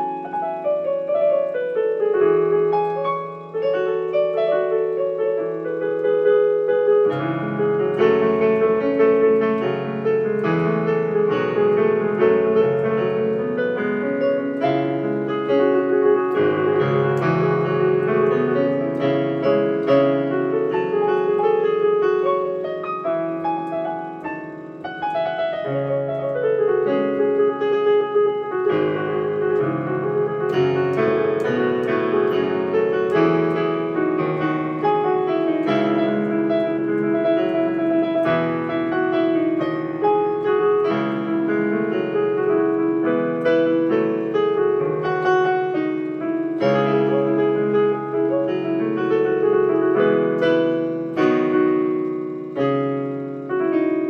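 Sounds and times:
digital piano playing: 0.0s - 54.0s.

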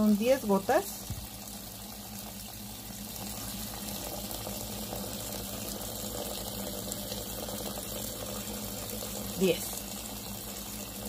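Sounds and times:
low steady hum: 0.0s - 11.0s
tap water splashing on lettuce: 1.0s - 1.4s.

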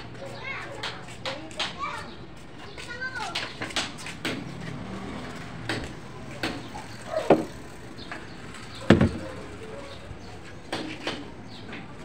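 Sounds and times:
sharp knocks and clicks: 5.7s - 8.2s, 8.9s - 9.4s
heavy thump: 7.3s - 7.6s, 8.9s - 9.4s.

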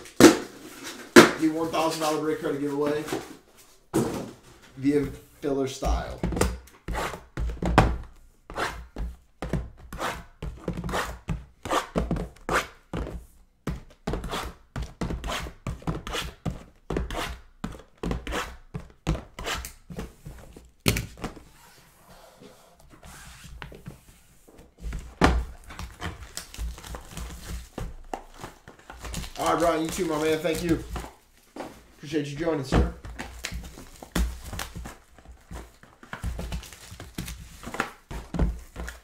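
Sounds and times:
boxes thunking on a table: 0.0s - 1.5s, 3.9s - 4.6s, 24.9s - 26.1s, 32.6s - 39.0s.

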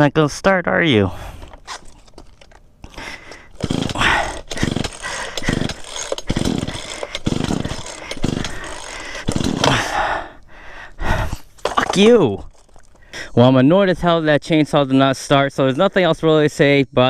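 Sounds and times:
chainsaw pull-cord starter: 1.4s - 10.4s
engine turning over: 2.9s - 10.0s.

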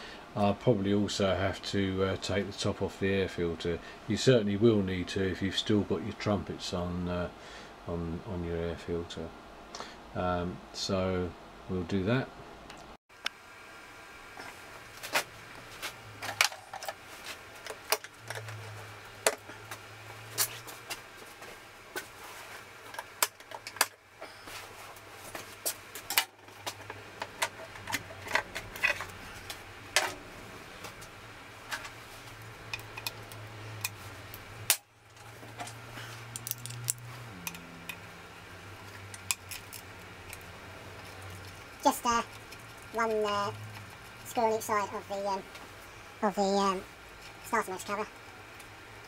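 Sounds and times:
low steady hum: 0.0s - 49.0s
metallic clicks and rattles of tools: 34.7s - 38.0s, 39.0s - 41.2s.

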